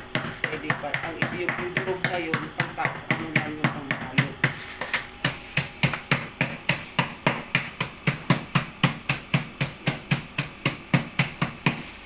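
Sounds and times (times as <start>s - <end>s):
rapid sharp knocking: 5.2s - 11.8s.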